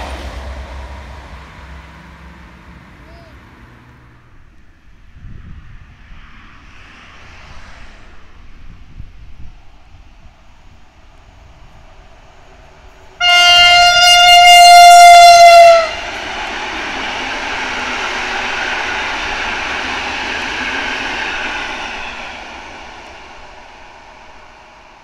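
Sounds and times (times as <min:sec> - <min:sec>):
train passing rumble and hiss: 0:00.0 - 0:25.0
train horn blast: 0:13.2 - 0:16.4.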